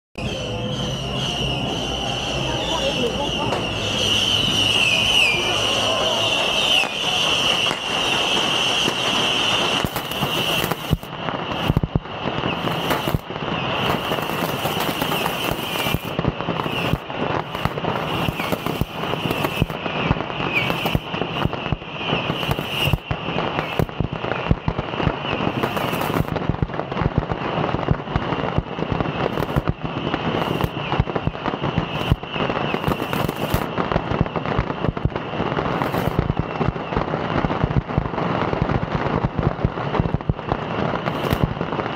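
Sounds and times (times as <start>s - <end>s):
bottle rockets cracking and popping: 6.7s - 26.6s, 28.5s - 36.9s.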